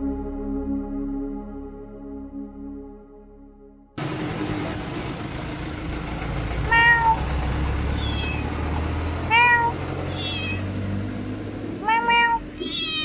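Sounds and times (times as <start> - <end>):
cat meowing: 6.7 - 7.3, 8.0 - 8.5, 9.3 - 10.7, 11.8 - 13.0.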